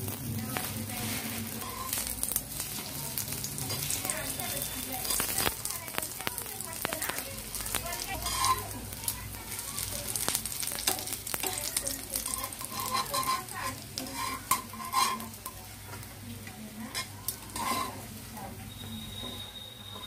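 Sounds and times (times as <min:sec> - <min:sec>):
bread sizzling in oil: 0:00.0 - 0:20.0
metal tongs clicking on pan: 0:01.6 - 0:04.2, 0:05.0 - 0:18.0.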